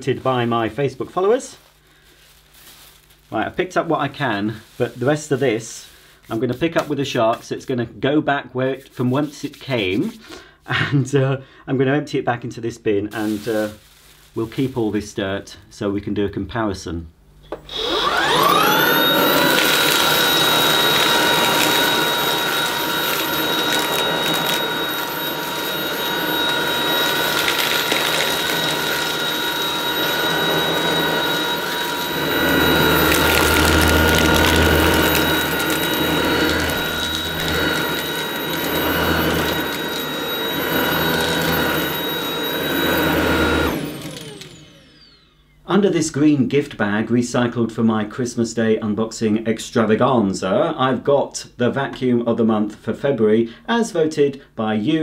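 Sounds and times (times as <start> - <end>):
cordless vacuum whining: 17.5 - 45.6
vacuum sucking up grit: 17.7 - 45.0.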